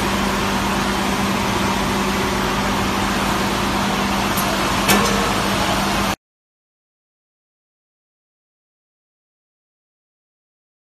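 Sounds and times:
constant low hum: 0.0 - 6.2
machinery running: 0.0 - 6.2.

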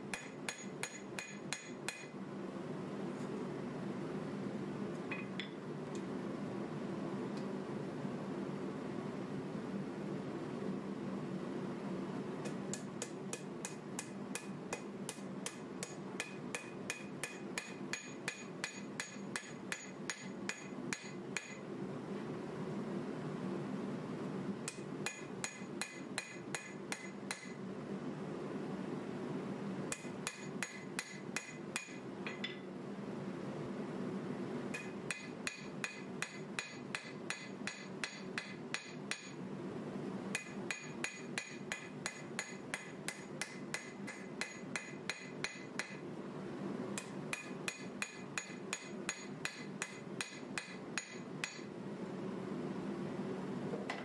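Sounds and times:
hammer ringing on anvil: 0.1 - 2.1, 12.8 - 21.6, 24.7 - 27.5, 29.9 - 32.6, 34.8 - 39.4, 47.0 - 51.7.

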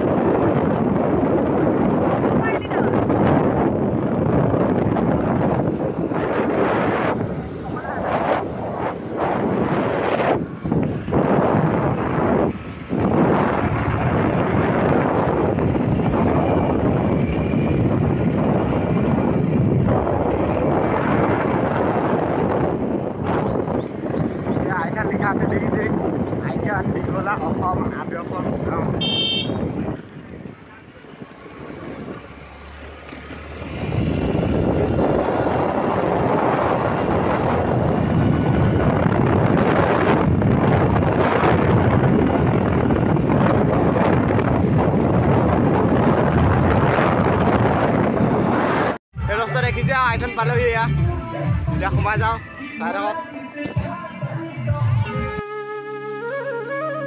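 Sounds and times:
wind rush over microphone: 0.0 - 32.5, 33.4 - 52.4
vehicle road noise: 0.0 - 57.0.

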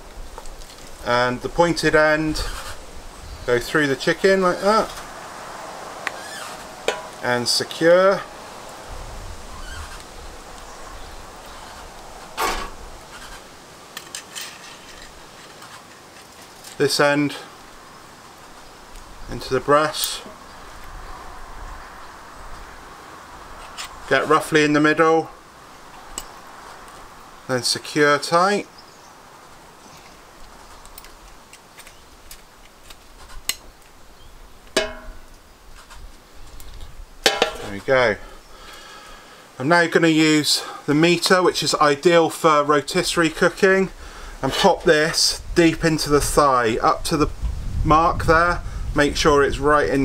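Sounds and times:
ringing metal clank: 6.9 - 7.2, 34.8 - 35.4, 37.3 - 37.7
metal fork scraping: 34.8 - 35.3.

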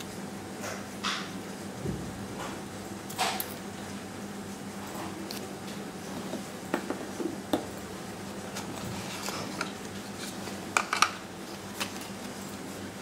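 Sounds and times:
steady low hum: 0.0 - 13.0
paper rustling: 11.5 - 12.6.

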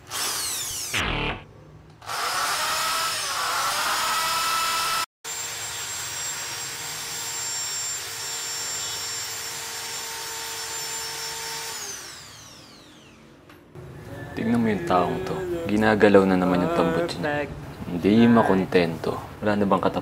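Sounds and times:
electric drill boring into metal: 0.0 - 1.0, 2.0 - 13.2.

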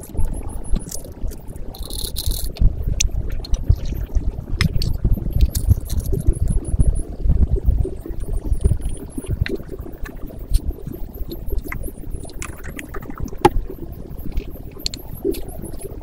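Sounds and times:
water boiling in a pot: 0.0 - 16.0
light clicks and ticks: 14.3 - 16.0.

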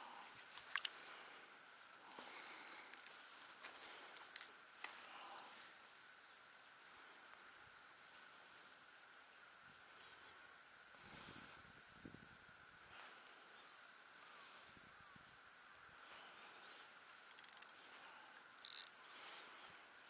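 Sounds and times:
soft steady hiss: 0.0 - 20.0
sharp clicks: 17.3 - 17.8, 18.7 - 18.9.

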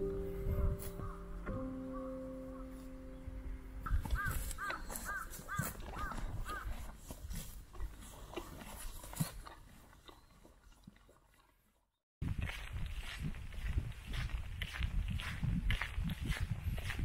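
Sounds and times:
bird cawing: 3.8 - 6.7.

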